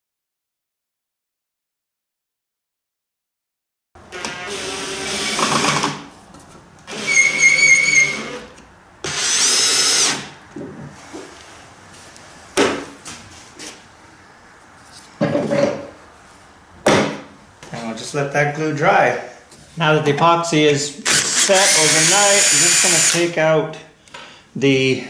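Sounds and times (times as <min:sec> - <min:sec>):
cordless drill driving screws: 0:04.1 - 0:06.0, 0:06.9 - 0:10.3, 0:21.0 - 0:23.2.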